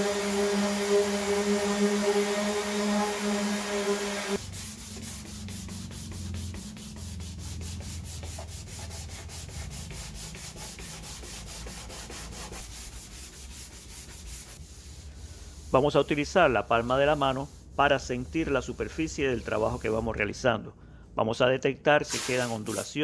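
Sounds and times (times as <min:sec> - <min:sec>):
electric orbital sander humming: 0:00.0 - 0:04.4
sanding block rubbing strokes: 0:00.0 - 0:20.1.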